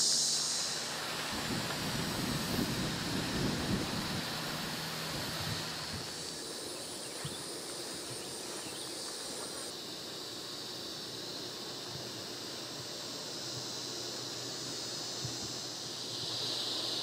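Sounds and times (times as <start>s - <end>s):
high-pitched outdoor hiss: 0.0s - 17.0s
wind rumbling on microphone: 1.0s - 8.8s.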